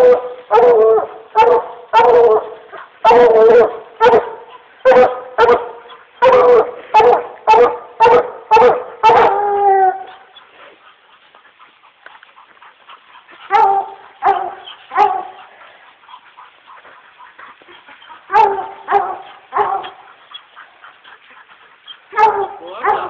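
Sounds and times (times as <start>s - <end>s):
dog barking: 0.0s - 10.1s, 13.5s - 15.5s, 18.3s - 20.1s, 22.1s - 23.0s.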